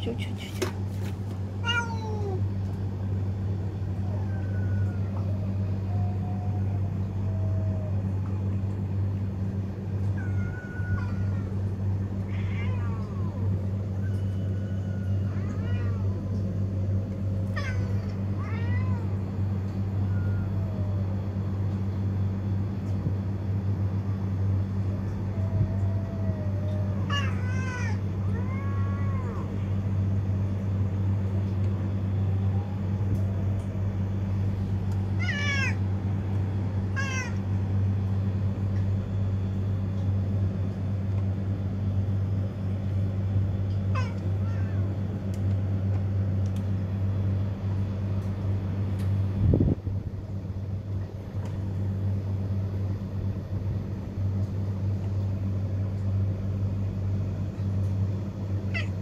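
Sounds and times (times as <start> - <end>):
steady low hum: 0.0 - 59.0
cats meowing: 1.6 - 2.5, 3.7 - 8.4, 9.9 - 16.6, 17.3 - 21.2, 25.1 - 30.2, 34.9 - 36.0, 36.8 - 37.6, 43.7 - 45.0, 58.5 - 59.0.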